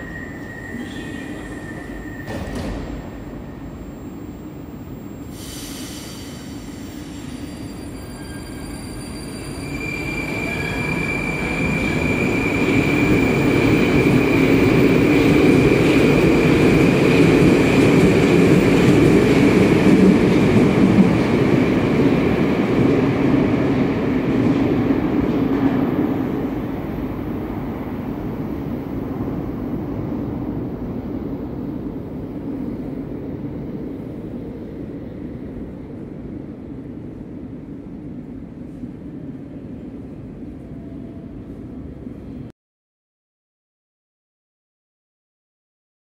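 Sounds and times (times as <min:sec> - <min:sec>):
short hiss: 0:05.3 - 0:07.2.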